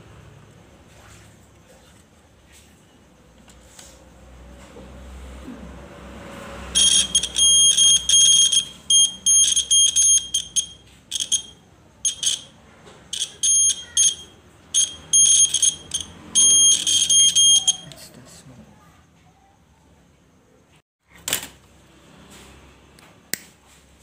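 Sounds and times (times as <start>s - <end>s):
piezo buzzer tone bursts: 6.7s - 17.9s.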